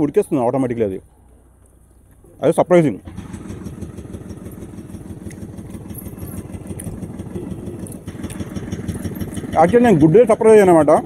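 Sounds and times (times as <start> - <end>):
vehicle engine chugging: 2.9 - 11.0.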